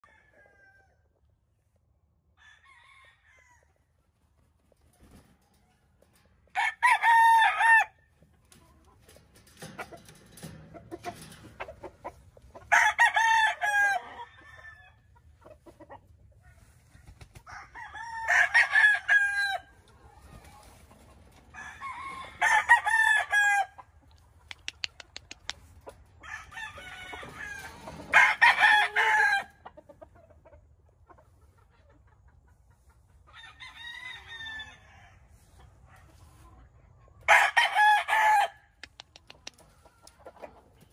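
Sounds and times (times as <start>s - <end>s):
young roosters crowing: 0.0s - 1.1s, 2.3s - 3.8s, 6.5s - 8.0s, 12.6s - 15.1s, 17.4s - 20.3s, 21.3s - 23.8s, 26.2s - 29.6s, 33.3s - 35.2s, 37.2s - 38.8s.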